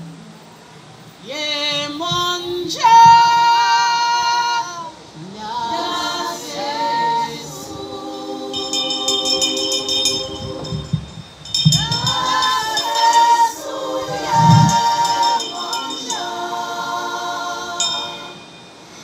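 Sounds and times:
woman singing without words: 1.2 - 19.0
high ringing jingling: 8.5 - 19.0.

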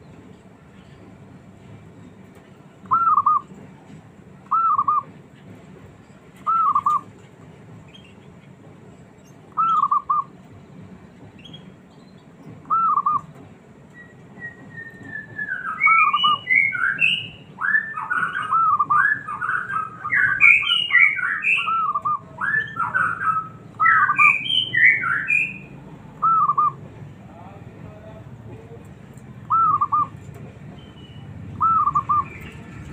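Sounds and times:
dove cooing: 9.6 - 10.3, 31.6 - 32.4.

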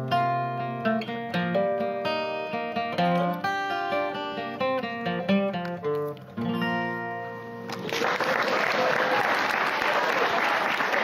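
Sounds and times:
acoustic guitar playing: 0.0 - 7.9.

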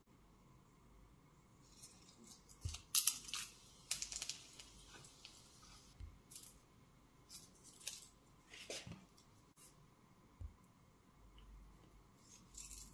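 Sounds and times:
spices crackling in hot oil: 1.6 - 6.0.

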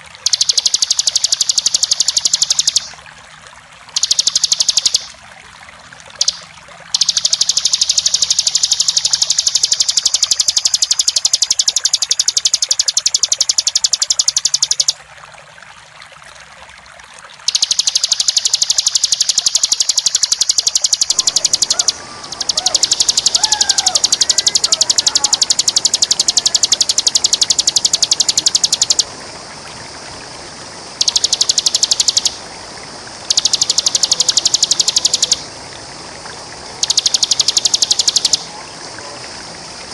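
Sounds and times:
bird buzzing trill: 17.5 - 29.1, 31.0 - 32.4, 33.3 - 35.5, 36.8 - 38.5
faint bird calls: 18.4 - 29.2.

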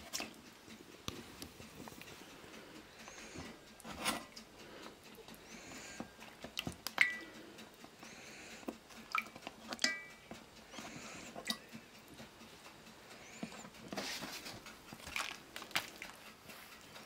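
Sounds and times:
metal tongs clinking on pan: 9.8 - 10.2.

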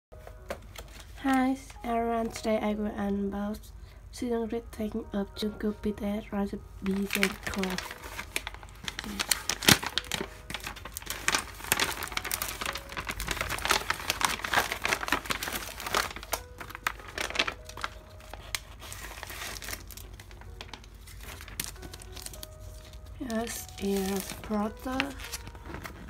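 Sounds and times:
plastic bag crinkling: 6.8 - 26.0.

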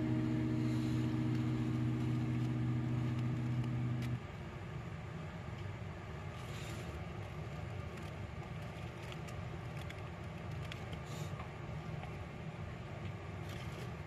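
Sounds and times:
low background rumble: 0.0 - 4.2.

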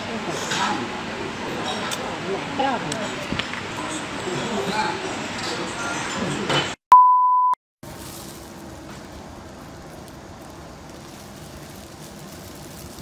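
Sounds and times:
high-pitched electronic beep: 6.9 - 7.6.

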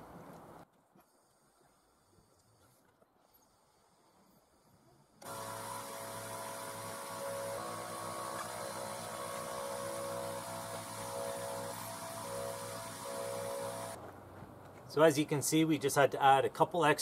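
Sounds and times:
air compressor humming: 5.2 - 14.0
compressed air hissing: 5.2 - 14.0.

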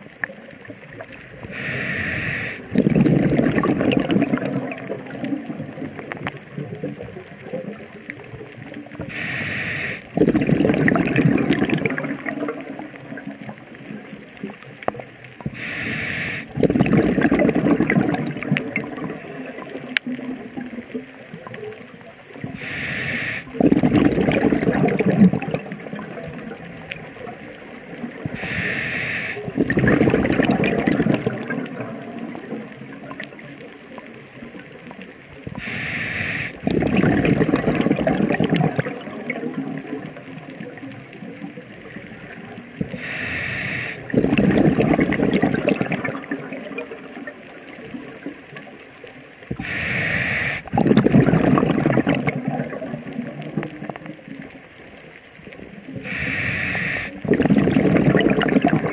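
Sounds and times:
exhaled air bubbling: 0.0 - 58.9
regulator inhale hiss: 1.4 - 2.7, 9.0 - 10.2, 15.4 - 16.6, 22.5 - 23.6, 28.3 - 29.6, 35.6 - 36.6, 42.8 - 44.1, 49.5 - 50.7, 56.0 - 57.2.

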